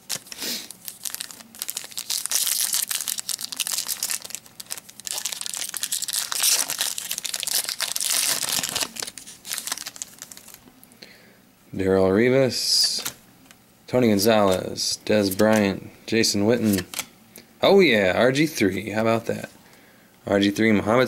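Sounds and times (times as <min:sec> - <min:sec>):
foil wrapper tearing and crinkling: 0:00.0 - 0:10.6.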